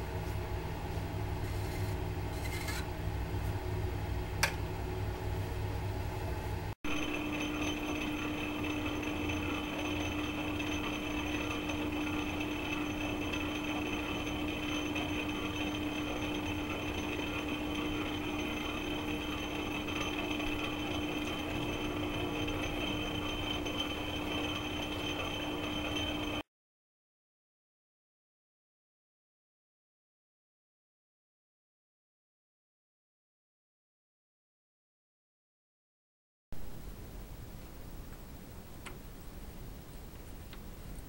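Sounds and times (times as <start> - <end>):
metal lathe hum and whine: 0.0 - 26.4.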